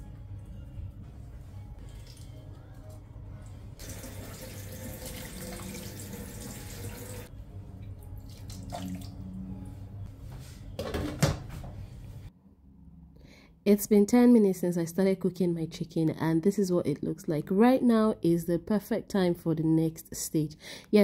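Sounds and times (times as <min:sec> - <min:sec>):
water pouring into a pot: 0:03.8 - 0:07.3.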